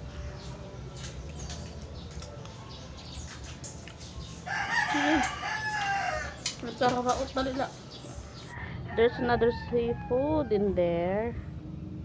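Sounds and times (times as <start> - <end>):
low background hum: 0.0 - 12.0
rooster crowing: 4.5 - 6.4, 8.5 - 10.8.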